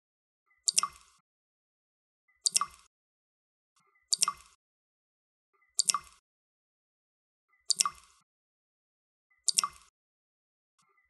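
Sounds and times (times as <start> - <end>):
water dripping: 0.7 - 1.2, 2.4 - 2.9, 4.1 - 4.6, 5.8 - 6.2, 7.7 - 8.2, 9.5 - 9.9.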